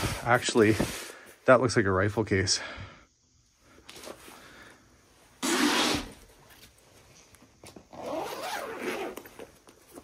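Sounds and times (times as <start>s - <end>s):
zipper being pulled open: 5.4s - 6.2s, 7.9s - 9.6s.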